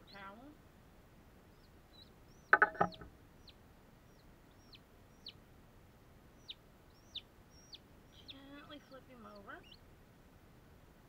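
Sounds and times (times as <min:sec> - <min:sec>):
chick peeping: 0:01.5 - 0:05.4, 0:06.4 - 0:09.8.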